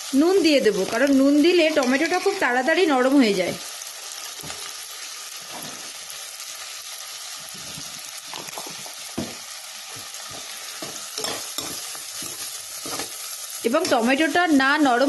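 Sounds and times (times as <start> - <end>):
food sizzling in hot oil: 0.0 - 15.0
spoon scraping pot: 10.3 - 13.2.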